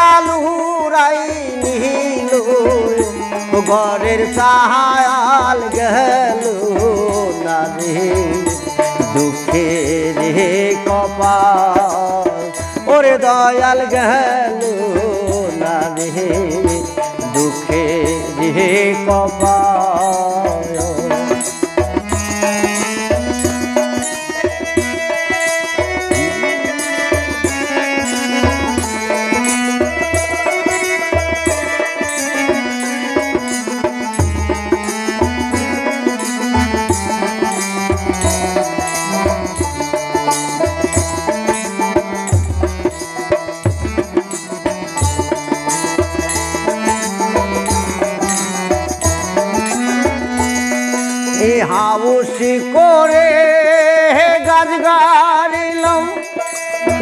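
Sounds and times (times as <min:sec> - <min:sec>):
harmonium melody: 0:00.0 - 0:57.0
plucked string instrument: 0:00.0 - 0:57.0
barrel drum beat: 0:14.9 - 0:51.6.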